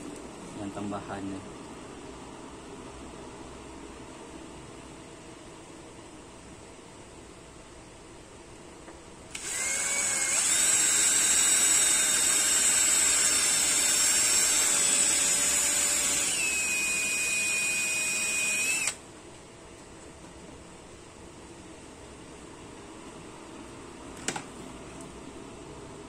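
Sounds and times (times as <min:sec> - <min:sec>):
power drill whining: 0:09.3 - 0:19.0.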